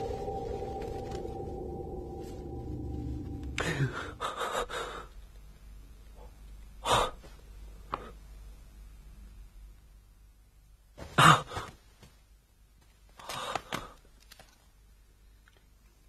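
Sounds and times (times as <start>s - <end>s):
person breathing: 3.5s - 5.2s.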